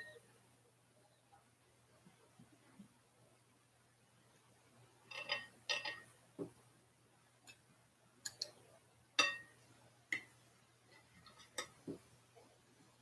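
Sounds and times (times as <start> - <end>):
cutlery clinking on plate: 5.1 - 6.1, 9.2 - 9.6.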